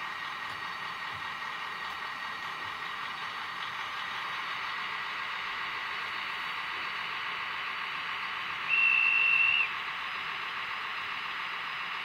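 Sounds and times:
high whistle tone from small speaker: 8.7 - 9.7.

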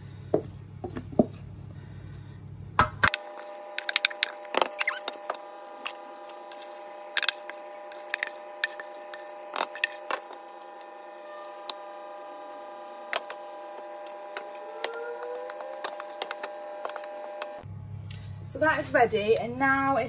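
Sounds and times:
steady hum: 0.0 - 20.0
wooden spoon scraping metal bowl: 3.8 - 11.0.

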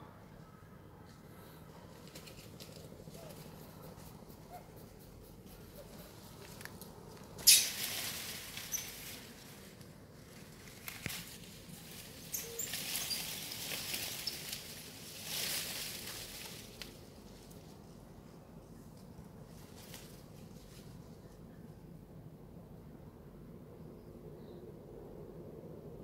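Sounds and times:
dry leaves rustling: 1.9 - 4.6, 5.8 - 18.1, 19.5 - 21.2.

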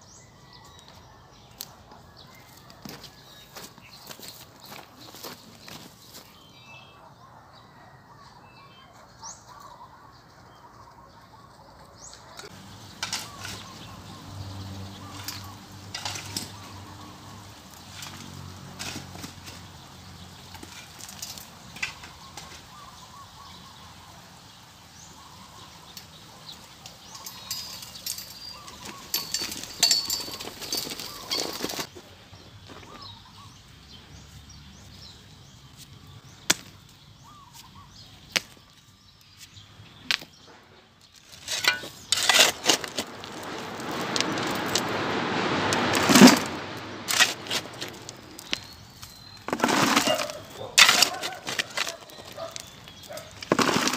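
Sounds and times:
shovel scraping through gravel: 12.9 - 19.7, 27.2 - 31.9, 41.2 - 53.9
stones clinking: 41.3 - 53.9.

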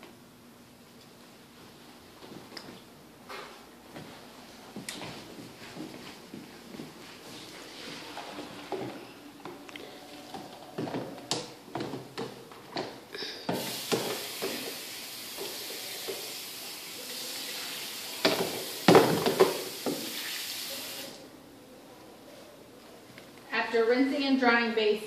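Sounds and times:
tap water running: 13.5 - 21.2
plastic basin knocking on sink: 18.2 - 20.1.

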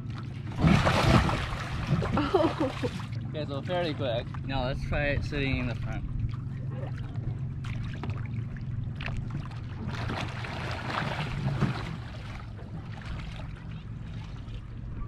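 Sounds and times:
water splashing against kayak: 0.0 - 15.0.

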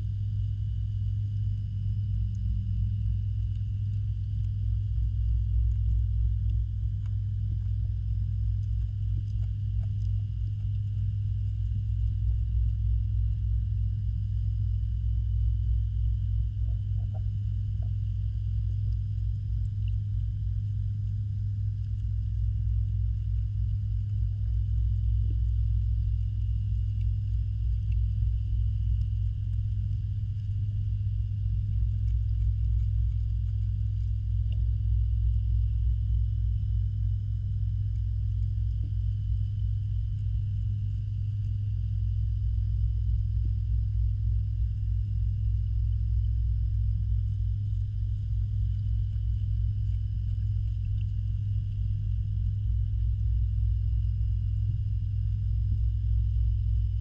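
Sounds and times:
faint high whine: 0.0 - 57.0
pond pump rumble underwater: 0.0 - 57.0.

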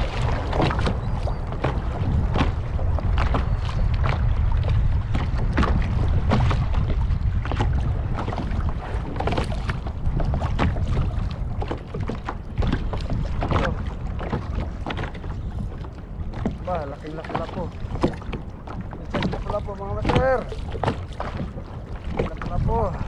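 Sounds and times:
water splashing against kayak hull: 0.0 - 23.0
wind rumbling on microphone: 0.0 - 23.0.

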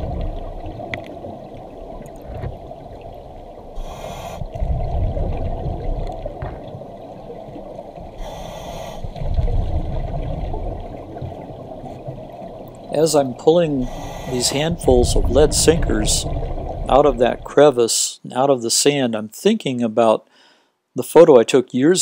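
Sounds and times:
exhaled air bubbling: 0.0 - 17.7
regulator air hiss: 3.8 - 4.5, 8.2 - 9.1, 13.8 - 14.8.

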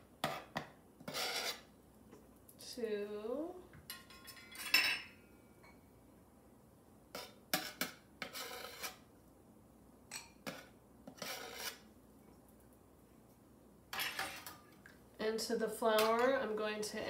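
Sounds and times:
measuring cup scraping flour: 1.1 - 1.7, 7.2 - 9.1, 10.5 - 11.9.

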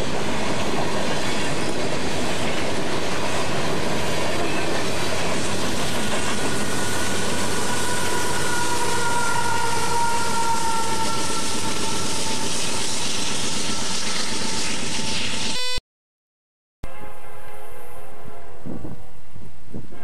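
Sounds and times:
freight train rumbling past: 0.0 - 14.8.

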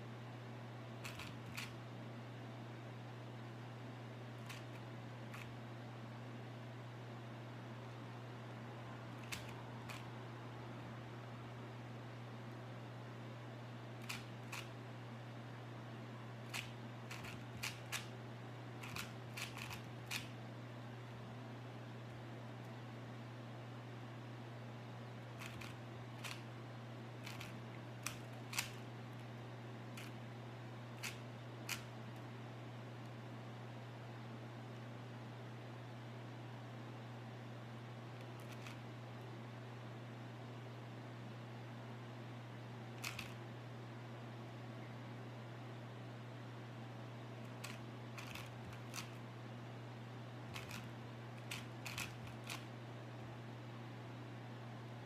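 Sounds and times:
steady low hum: 0.0 - 55.0
plastic puzzle cube clicking: 1.0 - 1.8, 4.4 - 5.5, 9.2 - 10.0, 14.0 - 14.7, 16.5 - 18.1, 18.8 - 20.3, 25.4 - 26.4, 27.2 - 28.8, 31.0 - 31.9, 43.0 - 43.4, 47.6 - 49.2, 50.5 - 52.6.

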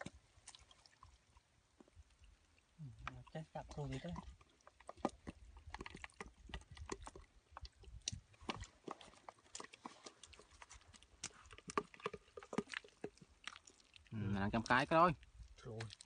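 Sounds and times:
hands squelching in wet mud: 0.0 - 16.0.

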